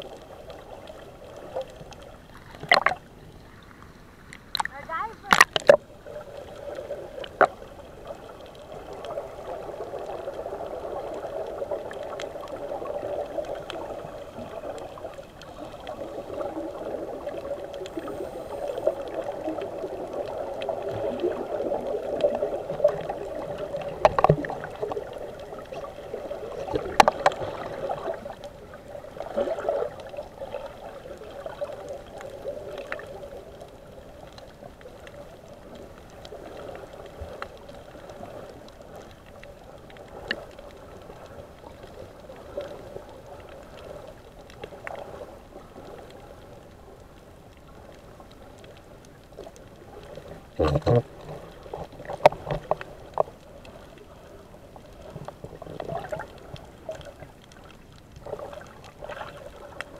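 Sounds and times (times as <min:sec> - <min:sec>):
underwater bubbling and gurgling: 0:00.0 - 0:59.9.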